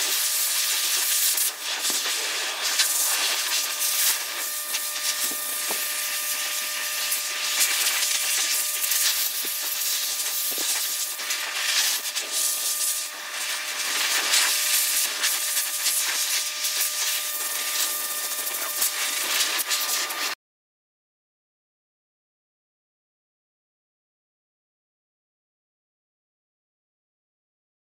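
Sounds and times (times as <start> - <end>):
blow dryer blasting air: 0.0 - 20.4.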